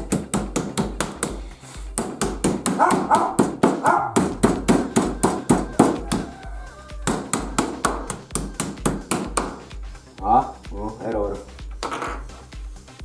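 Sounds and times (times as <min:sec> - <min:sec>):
meat mallet pounding meat: 0:00.0 - 0:06.3, 0:07.0 - 0:09.7.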